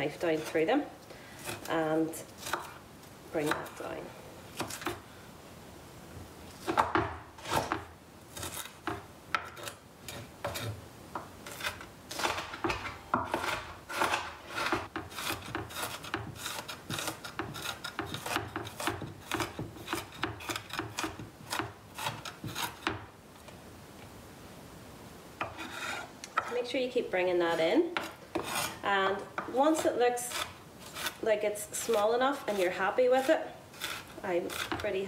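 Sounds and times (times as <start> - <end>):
knife chopping on wooden board: 6.6 - 23.1.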